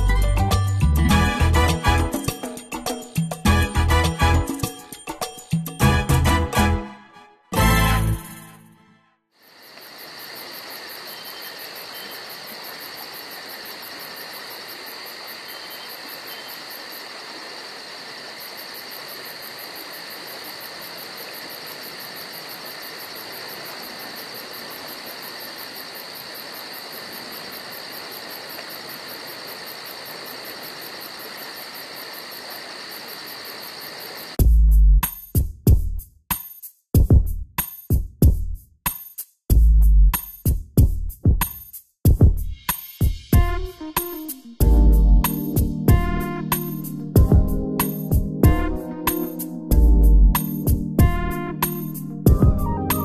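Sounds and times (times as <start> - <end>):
crickets trilling: 9.4 - 34.4, 45.3 - 48.2, 49.1 - 49.7, 50.4 - 53.0
even hiss: 42.4 - 44.6.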